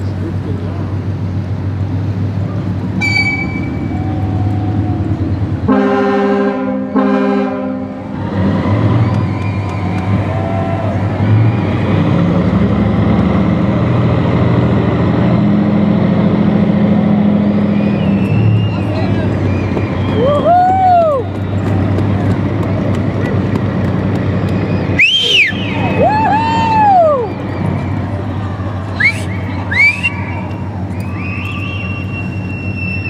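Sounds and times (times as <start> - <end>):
engine drone: 0.0 - 33.0
deep horn blasts: 5.6 - 9.1.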